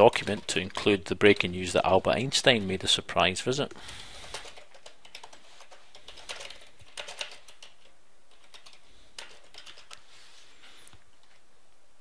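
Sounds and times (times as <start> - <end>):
computer keyboard typing: 0.0 - 1.5, 3.7 - 10.1.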